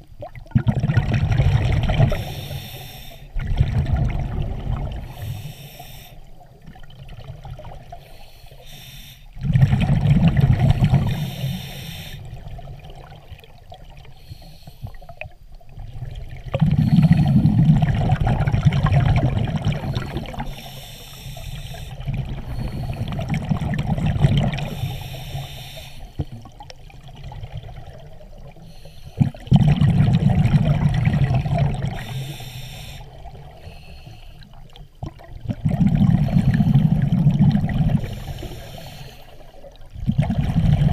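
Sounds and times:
exhaled bubbles rushing: 0.0s - 2.3s, 3.4s - 5.2s, 9.4s - 11.4s, 15.7s - 20.5s, 21.9s - 25.0s, 26.4s - 28.6s, 29.2s - 32.1s, 34.5s - 38.4s, 39.8s - 40.9s
scuba regulator inhale hiss: 2.1s - 3.4s, 5.1s - 6.4s, 7.9s - 9.4s, 11.0s - 12.4s, 14.1s - 15.2s, 16.7s - 17.7s, 19.8s - 23.3s, 24.6s - 26.3s, 28.6s - 29.4s, 31.9s - 34.6s, 36.1s - 37.0s, 37.9s - 39.7s.

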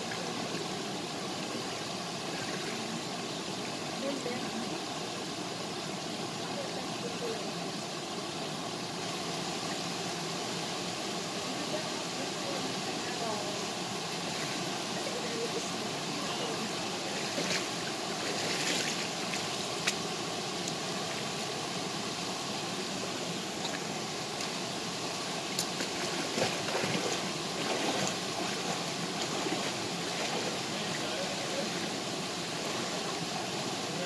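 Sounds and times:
small waterfall pouring into pool: 0.0s - 20.0s, 20.6s - 34.0s
person moving in water: 17.1s - 19.4s, 25.5s - 31.9s.

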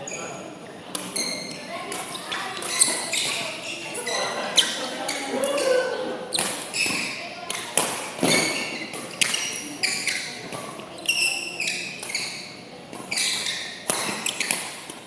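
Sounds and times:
sneakers squeaking on court: 0.0s - 5.7s, 6.3s - 15.0s
rackets hitting shuttlecock: 6.4s - 15.0s.

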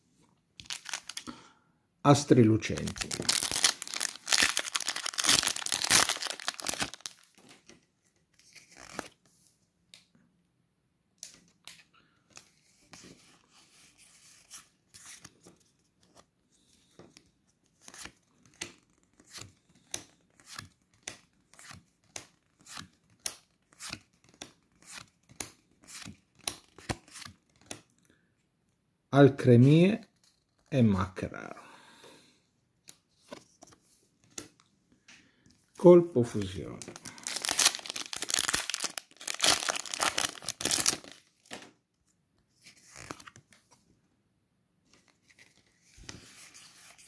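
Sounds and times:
foil wrapper tearing and crinkling: 0.6s - 1.2s, 2.8s - 7.4s, 37.0s - 41.3s.

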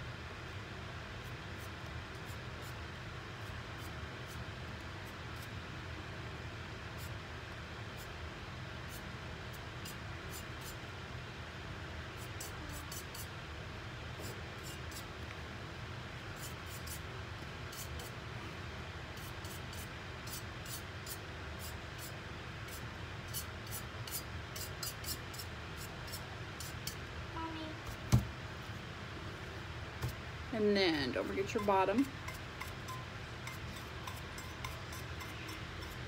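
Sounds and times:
room noise hiss: 0.0s - 36.0s
paintbrush scratching on cup: 31.5s - 36.0s.

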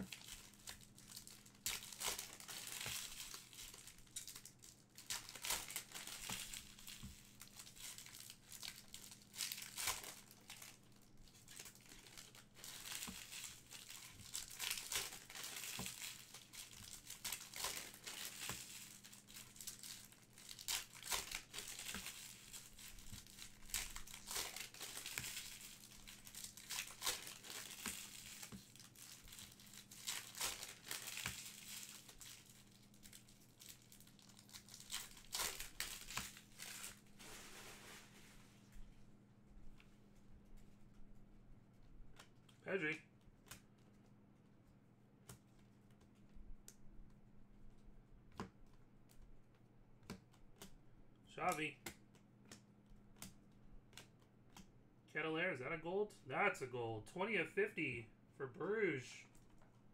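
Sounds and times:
wrappers crinkling and tearing: 0.0s - 38.4s
faint low hum: 0.0s - 59.9s.

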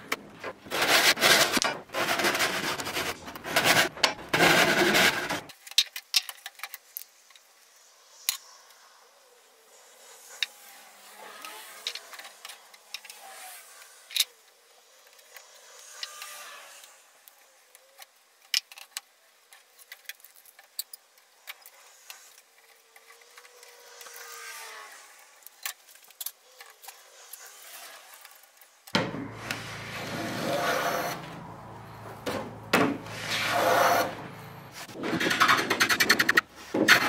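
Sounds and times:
wood rubbing and knocking: 0.1s - 5.5s.

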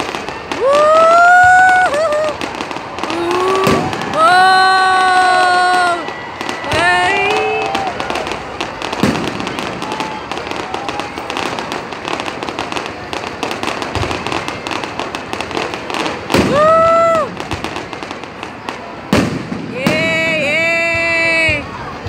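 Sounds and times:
fireworks crackling: 0.0s - 22.0s
loud drawn-out whoop: 0.5s - 8.4s, 9.5s - 11.4s, 16.4s - 17.4s.

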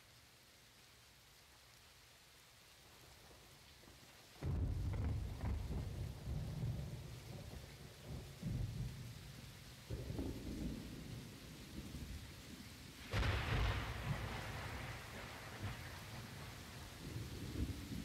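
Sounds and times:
rain hissing: 0.0s - 18.0s
loud thunderclap: 4.4s - 6.8s, 13.1s - 15.9s
thunder rumbling: 4.4s - 12.0s, 13.1s - 18.0s.

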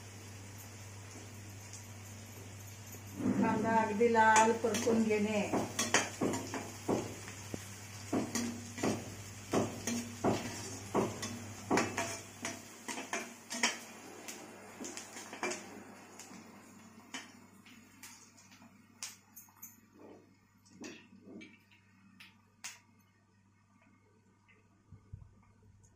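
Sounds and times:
onions frying: 0.0s - 19.6s
metal spatula scraping iron pan: 9.8s - 13.9s.

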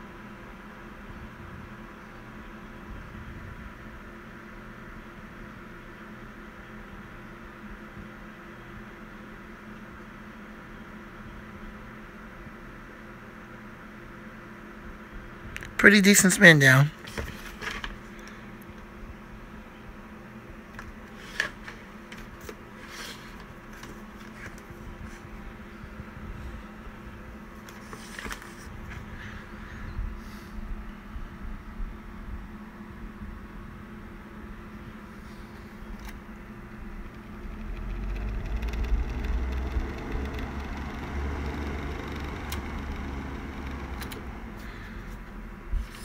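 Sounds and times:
box fan running: 0.0s - 46.0s
steady low hum: 0.0s - 46.0s
sharp clicks: 37.0s - 44.7s.

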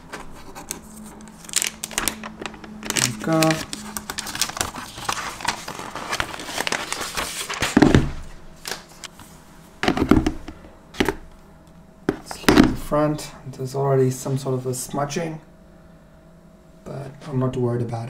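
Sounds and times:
paper wrapping rustling: 0.0s - 9.1s.

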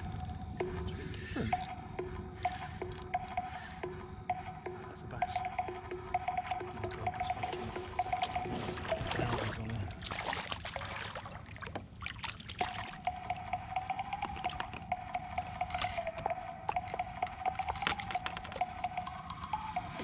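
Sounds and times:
water splashing and dripping: 6.8s - 19.1s.

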